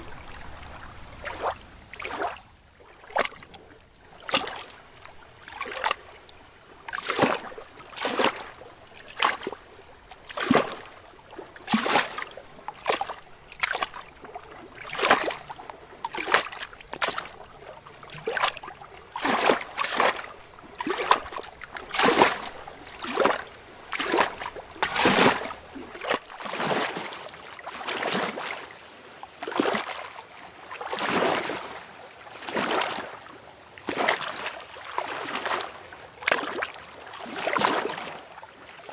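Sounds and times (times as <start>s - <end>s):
lake water lapping: 0.0s - 38.9s.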